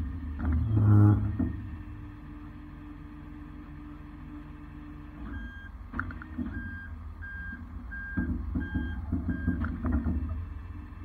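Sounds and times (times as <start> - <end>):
truck engine running: 0.0 - 11.0
reverse alarm beeping: 6.6 - 9.6.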